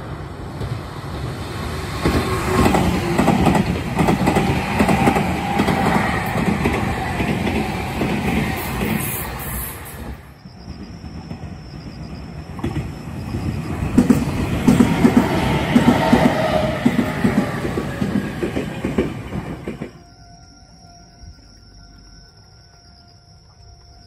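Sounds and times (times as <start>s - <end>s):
electric train passing: 0.0s - 21.3s
wheels clattering over rail joints: 0.4s - 11.6s, 12.5s - 20.0s.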